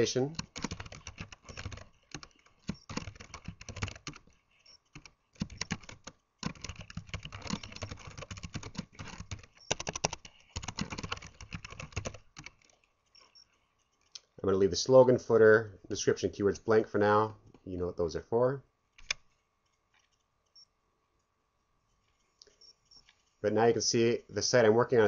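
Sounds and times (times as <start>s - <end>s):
typing on a computer keyboard: 0.4s - 12.8s.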